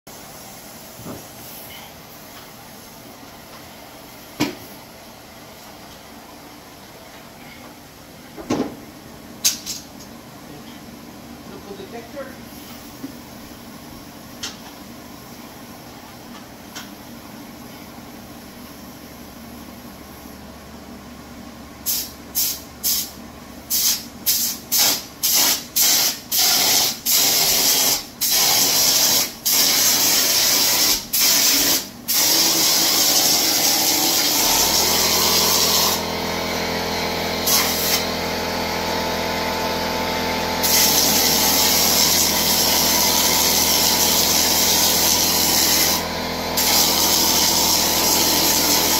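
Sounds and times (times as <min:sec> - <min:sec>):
pneumatic spray gun bursts: 0:21.8 - 0:36.2, 0:37.4 - 0:38.2, 0:40.6 - 0:48.9
air compressor motor running: 0:21.8 - 0:48.9.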